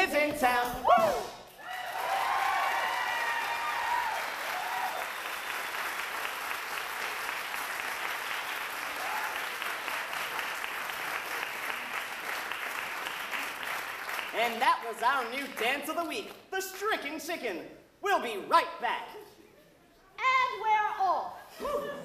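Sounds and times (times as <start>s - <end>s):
voices cheering: 0.9s - 5.3s, 8.9s - 9.6s
audience applauding: 1.6s - 16.1s.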